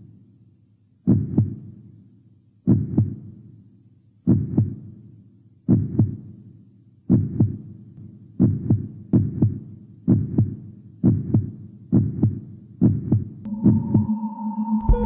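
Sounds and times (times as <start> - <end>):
heartbeat thumps: 1.1 - 1.6, 2.7 - 3.2, 4.3 - 4.8, 5.7 - 6.2, 7.1 - 7.6, 8.4 - 14.1
steady droning tone: 13.5 - 15.0.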